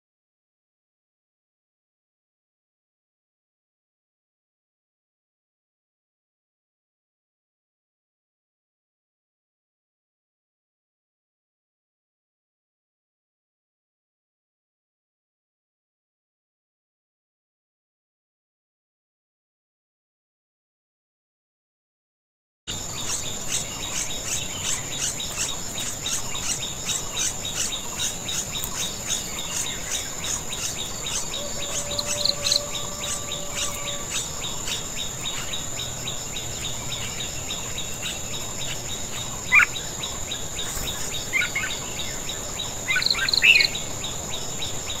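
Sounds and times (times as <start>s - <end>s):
high-pitched insect trill: 22.7s - 45.0s.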